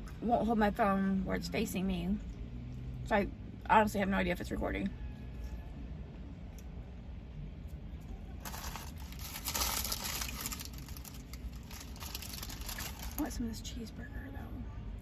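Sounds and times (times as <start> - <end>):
paper wrapper crinkling: 8.4 - 13.4.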